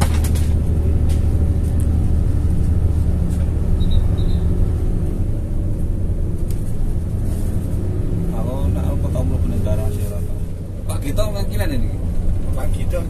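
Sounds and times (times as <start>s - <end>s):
bus engine drone: 0.0s - 13.0s
road rumble: 0.0s - 13.0s
high chirps: 3.8s - 4.6s.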